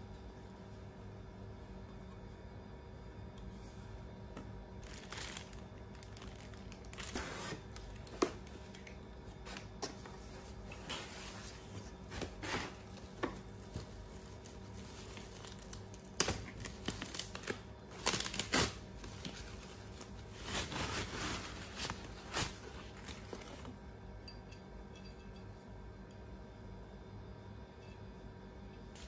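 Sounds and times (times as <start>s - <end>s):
protective wrap rustling: 4.8s - 9.7s, 10.5s - 23.7s.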